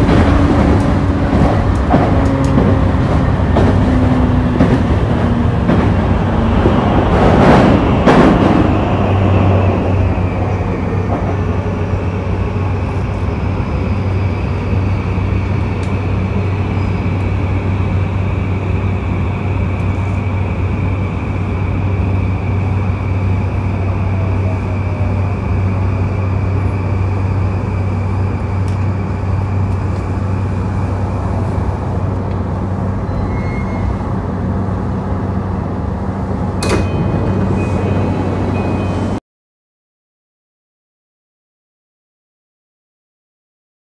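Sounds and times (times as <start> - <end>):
train electrical hum: 0.0 - 39.2.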